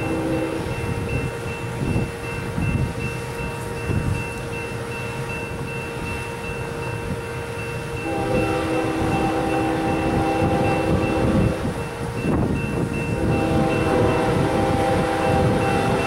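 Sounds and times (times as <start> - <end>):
train air horn: 0.0 - 0.9, 8.0 - 11.8, 13.1 - 16.0
distant train rumble: 0.0 - 16.0.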